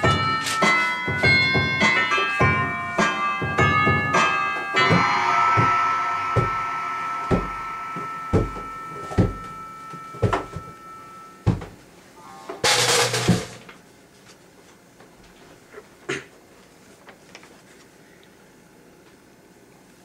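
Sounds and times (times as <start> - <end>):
electronic keyboard notes and chords: 0.0 - 11.5, 12.2 - 13.1.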